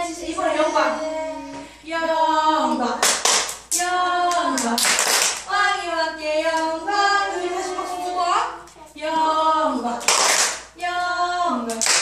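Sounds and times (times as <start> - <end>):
children singing: 0.0 - 3.1, 3.8 - 10.1
hand clapping: 3.0 - 5.5, 10.0 - 10.7, 11.7 - 12.0.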